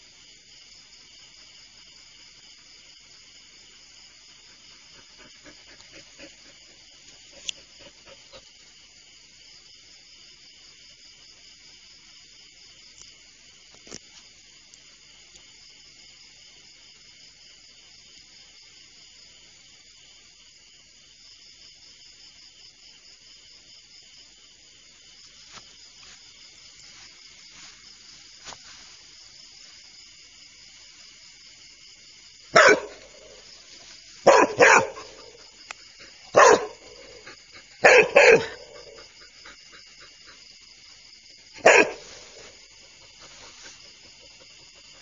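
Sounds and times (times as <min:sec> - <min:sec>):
night insects chorus: 0:00.0 - 0:45.0
dog barking: 0:32.5 - 0:33.4, 0:34.2 - 0:35.5, 0:36.3 - 0:39.3, 0:41.6 - 0:42.6.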